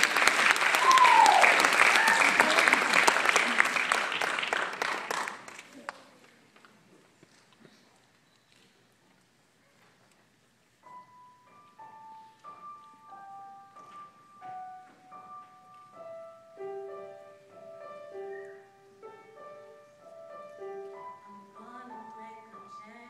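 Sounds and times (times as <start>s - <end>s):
slow piano melody: 10.7s - 23.0s.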